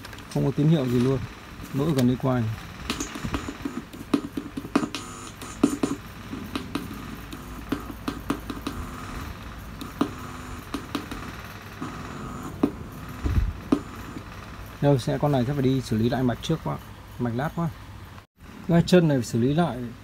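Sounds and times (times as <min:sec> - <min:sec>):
crackles and clicks from speaker: 0:00.0 - 0:05.9.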